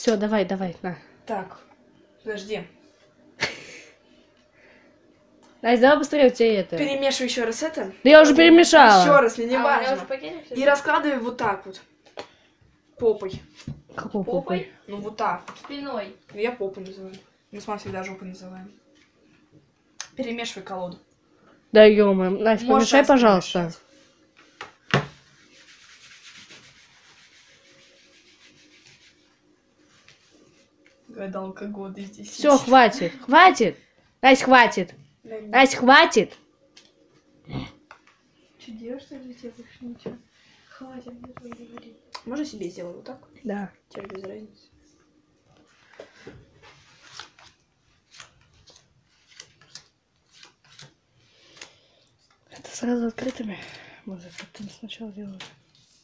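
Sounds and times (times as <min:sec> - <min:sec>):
playing cards shuffling: 0:46.7 - 0:52.4.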